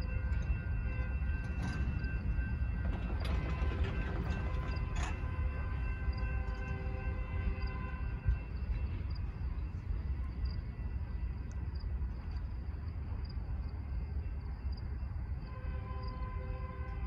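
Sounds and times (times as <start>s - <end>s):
cricket chirping: 0.0s - 17.0s
freight train rumble: 0.0s - 17.0s.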